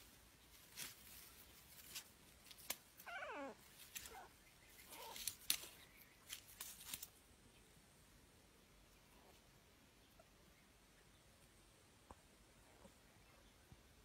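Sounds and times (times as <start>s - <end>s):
scuffling in grass: 0.0s - 7.2s.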